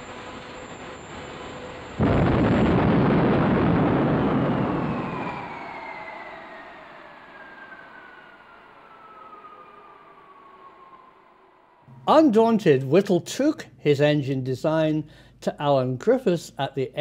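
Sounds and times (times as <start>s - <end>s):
jet engine roaring: 0.0s - 12.3s
jet engine whine: 0.0s - 13.8s.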